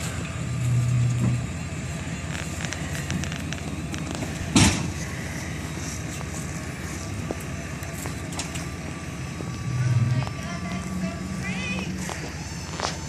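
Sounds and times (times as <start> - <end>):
vehicle engine running: 0.0 - 13.0
loud bang: 4.5 - 4.9.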